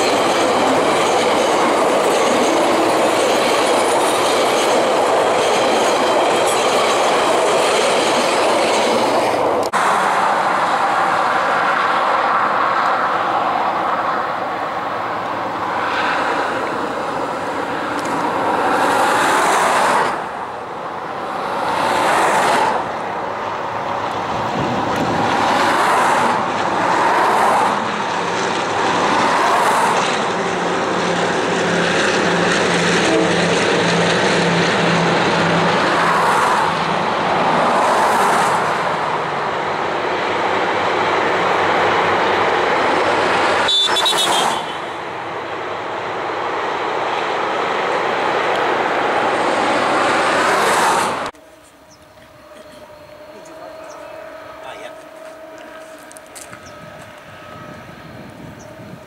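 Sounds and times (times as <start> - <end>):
train wheels on track: 0.0 - 59.0
low diesel engine drone: 51.2 - 59.0.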